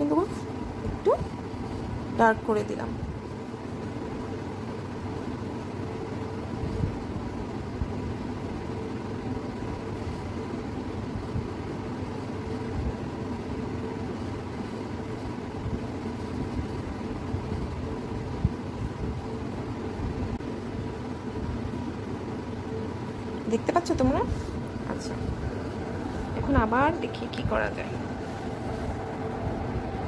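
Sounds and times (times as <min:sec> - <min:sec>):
faint machine hum: 0:00.0 - 0:30.0
steady low rumble: 0:06.0 - 0:30.0.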